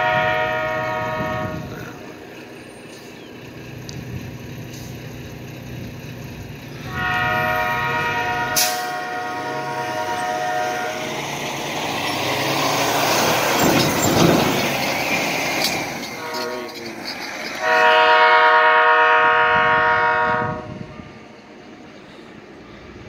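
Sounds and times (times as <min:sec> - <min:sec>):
locomotive air horn blasts: 0:00.0 - 0:01.9, 0:06.8 - 0:11.6, 0:16.0 - 0:16.9, 0:17.6 - 0:21.2.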